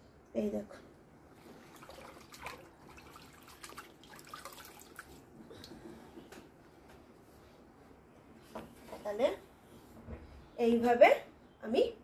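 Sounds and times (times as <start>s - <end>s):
water dripping: 1.7s - 5.8s.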